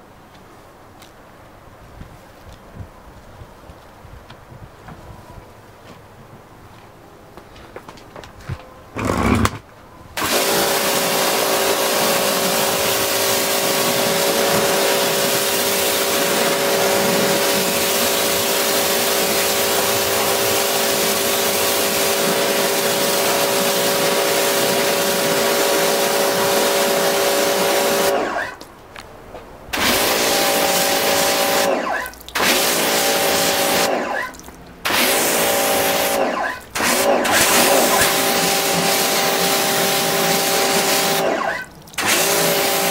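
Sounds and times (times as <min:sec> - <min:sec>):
pressure washer motor: 0:09.0 - 0:09.6, 0:10.2 - 0:28.6, 0:29.8 - 0:34.3, 0:34.9 - 0:42.9.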